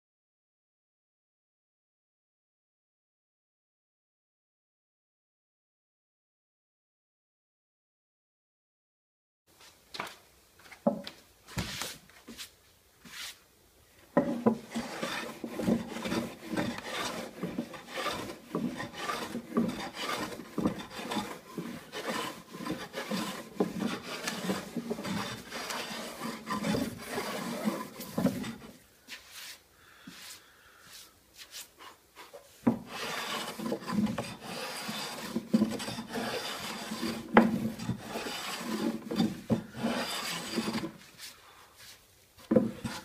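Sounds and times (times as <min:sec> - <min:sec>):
hand plane strokes on wood: 0:14.1 - 0:43.0.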